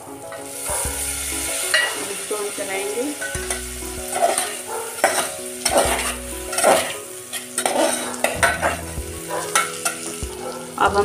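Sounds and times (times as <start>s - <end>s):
oil sizzling: 0.0s - 11.0s
metal spoon scraping a pot: 3.2s - 10.2s.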